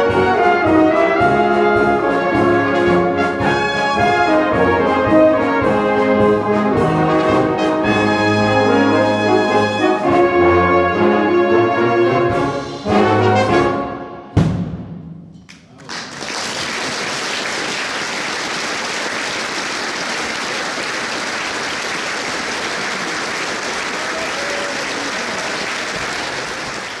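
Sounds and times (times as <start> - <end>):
audience applauding: 15.7 - 27.0.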